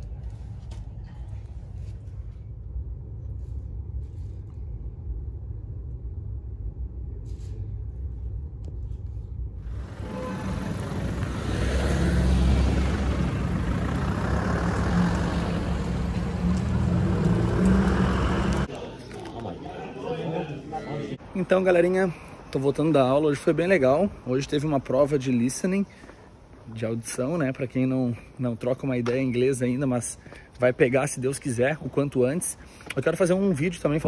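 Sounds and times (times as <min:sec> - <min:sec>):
low steady rumble: 0:00.0 - 0:11.5
loud street noise: 0:09.6 - 0:21.5
sports car engine driving by: 0:09.7 - 0:18.7.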